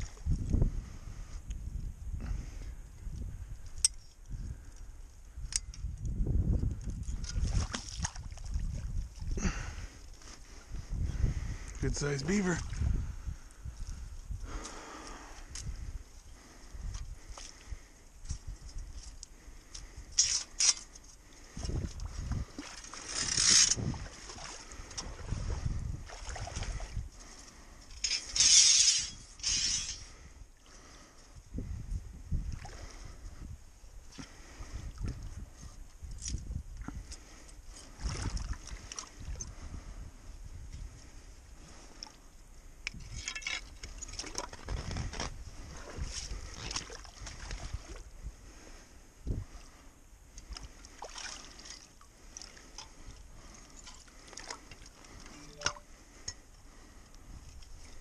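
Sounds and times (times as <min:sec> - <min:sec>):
water splashing and sloshing: 0:00.0 - 0:00.5, 0:06.6 - 0:31.0, 0:36.1 - 0:39.8, 0:41.6 - 0:58.0
hands splashing in muddy water: 0:07.3 - 0:09.3, 0:22.0 - 0:26.9, 0:50.8 - 0:52.6
metal chain rattling: 0:28.0 - 0:30.0.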